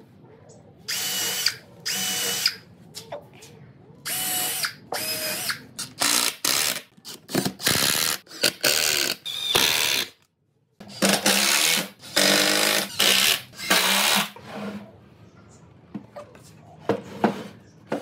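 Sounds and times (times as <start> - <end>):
impact driver driving screws: 10.9 - 14.4.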